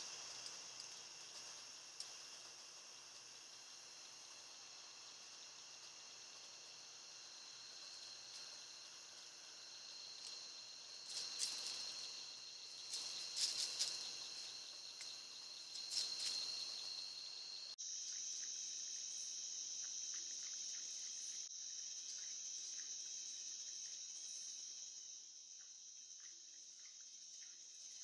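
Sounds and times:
night insects trilling: 0.0 - 28.0.

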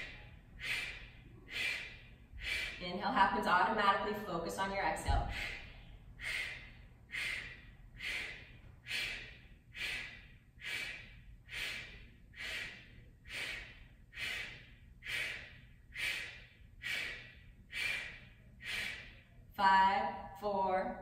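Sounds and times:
woman exhaling forcefully: 0.0 - 2.8, 5.2 - 19.1.

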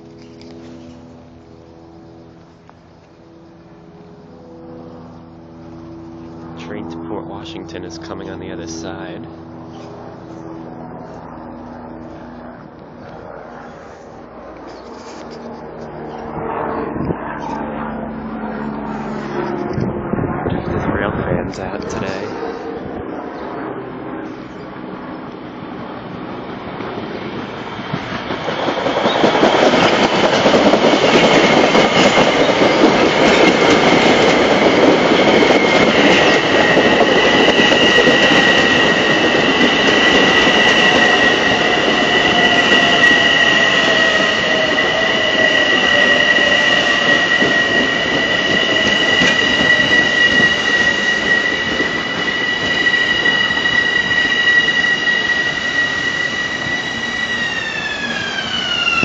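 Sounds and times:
train wheel and rail noise: 0.0 - 16.3, 21.0 - 59.0
low whine falling in pitch: 0.0 - 59.0
high-pitched brake squeal: 35.2 - 59.0.

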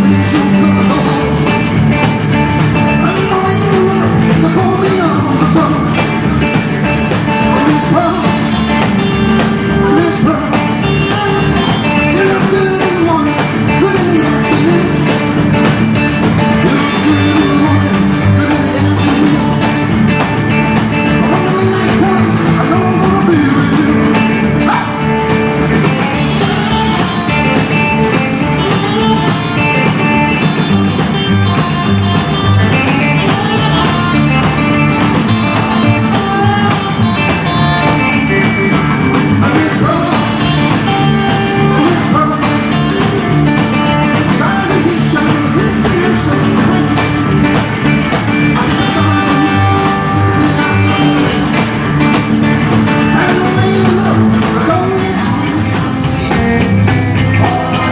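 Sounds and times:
man singing: 0.0 - 34.9, 35.5 - 57.9
drum kit: 0.0 - 57.9
electric and acoustic guitars: 0.0 - 57.9
upright double bass: 0.0 - 57.9.

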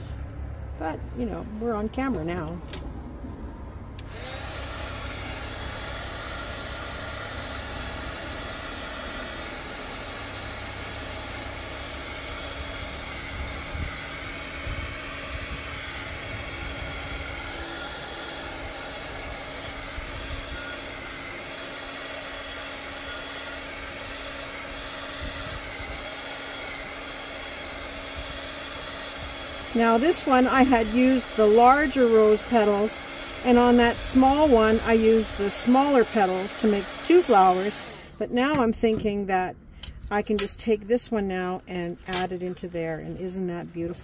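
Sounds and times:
heat gun blowing air: 4.0 - 39.2
wind rumbling on microphone: 13.3 - 17.4, 25.2 - 26.0.

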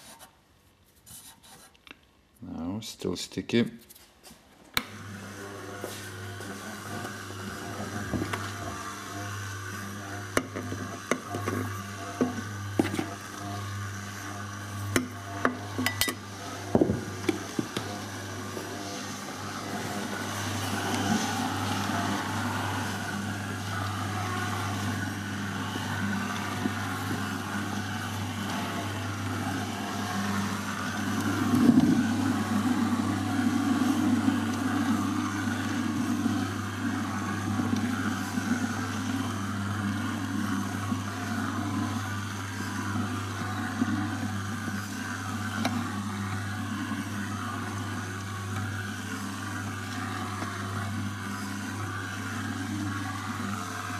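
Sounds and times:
mixer motor humming: 4.7 - 53.9
dough churning in metal pot: 5.0 - 53.9.

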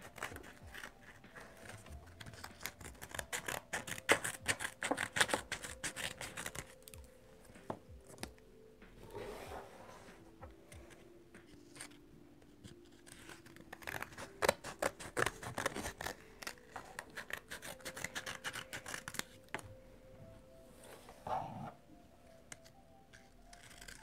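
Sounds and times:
scissors snipping paper: 0.0 - 7.0, 12.6 - 19.6, 22.5 - 24.0.

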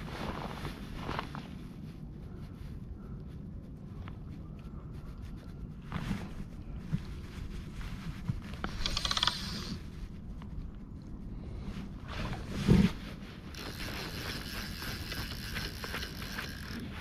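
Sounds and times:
wind rumble on microphone: 0.0 - 17.0
rapid fine clicking of fishing line: 8.6 - 9.8, 13.5 - 16.8.

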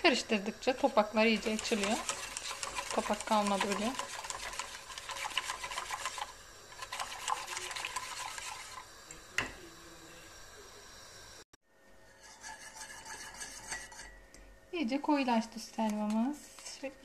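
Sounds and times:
whisk scraping metal pot: 0.6 - 8.9, 12.2 - 14.2.

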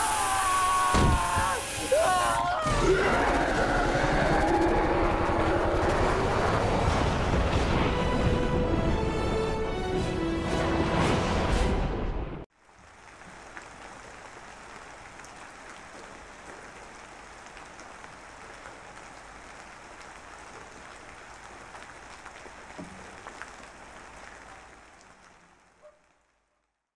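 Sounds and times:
rain: 0.0 - 11.1, 12.5 - 26.9
theme music: 1.6 - 12.5.

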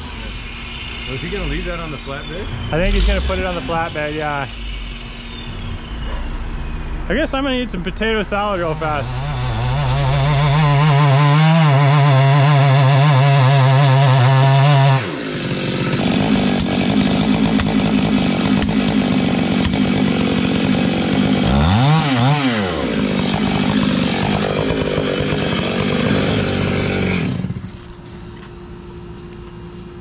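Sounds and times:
chainsaw cutting tree trunk: 8.4 - 27.9.

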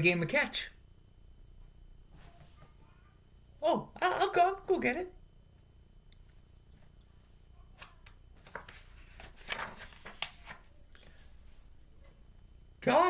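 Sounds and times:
low room hum: 0.0 - 13.0
paper page rustling: 7.7 - 11.7.

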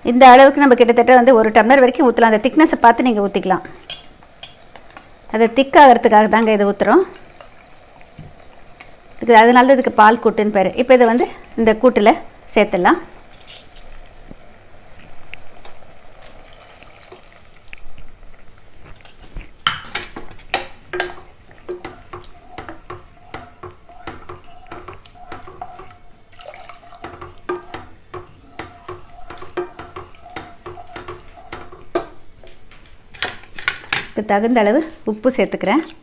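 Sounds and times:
wooden spatula scraping metal pan: 26.9 - 32.0.

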